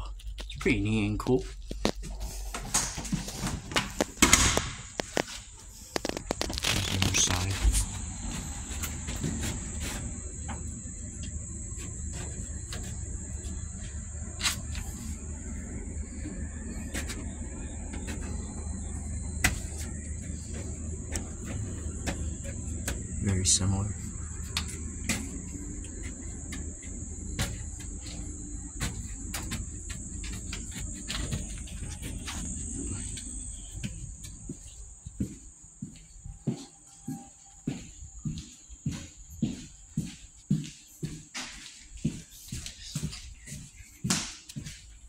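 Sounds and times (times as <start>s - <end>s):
low rumble: 0.0s - 35.1s
insects trilling: 0.0s - 45.0s
scattered clicks and knocks: 16.2s - 34.4s.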